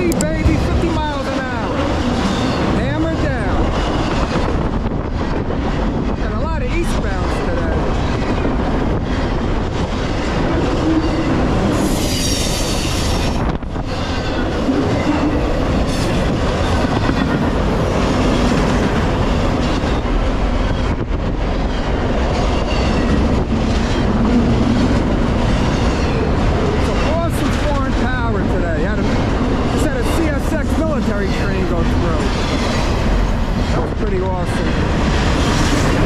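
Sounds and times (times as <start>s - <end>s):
train wheels rumbling on rails: 0.0s - 36.0s
high wheel squeal: 10.7s - 15.5s.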